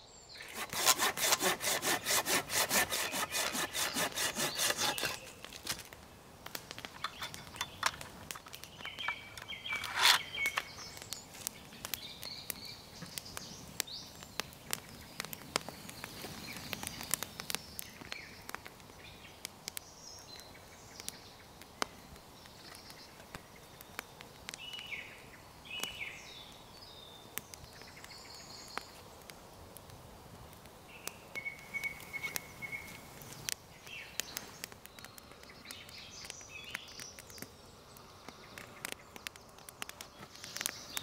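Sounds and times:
campfire crackling: 0.3 - 41.0
twigs snapping underfoot: 3.0 - 20.4, 30.5 - 41.0
bird chirps: 8.7 - 14.2, 31.0 - 33.0.

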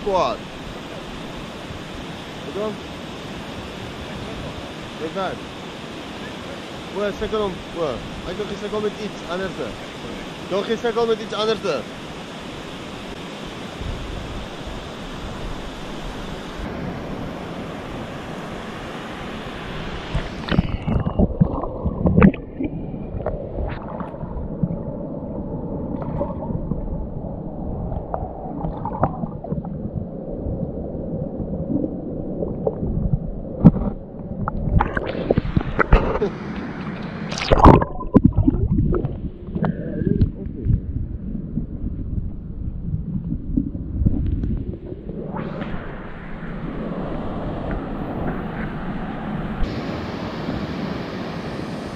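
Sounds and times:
muffled underwater gurgling: 20.1 - 49.0
knocks and splashes: 20.2 - 24.8, 32.6 - 36.7, 37.3 - 40.9.

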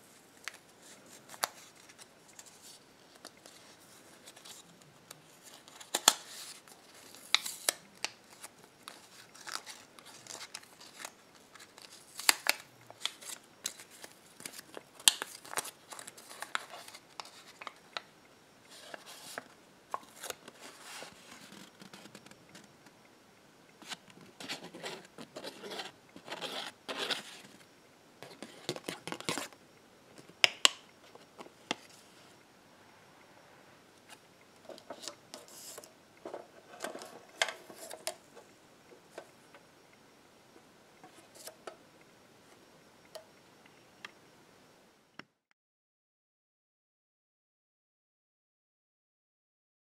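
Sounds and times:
paper crinkling: 5.4 - 18.1, 23.8 - 27.6.

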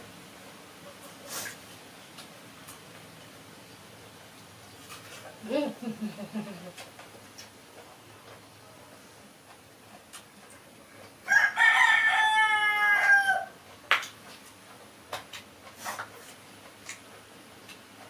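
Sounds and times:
rooster crowing: 11.2 - 13.6.

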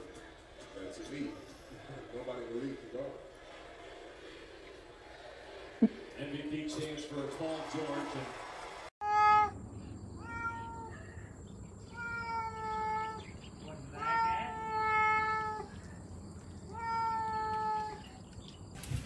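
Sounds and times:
cat meowing: 9.0 - 9.6, 10.2 - 11.2, 11.8 - 15.8, 16.6 - 18.1.

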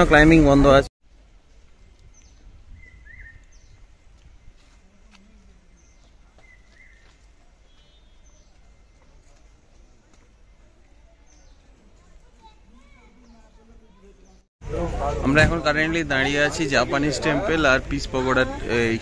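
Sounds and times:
birdsong chirps: 1.5 - 14.5.

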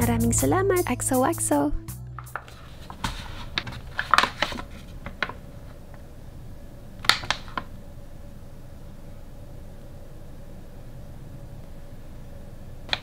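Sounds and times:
faint steady hum: 0.0 - 13.0
plastic pouch crinkling and tapping: 2.2 - 5.5.

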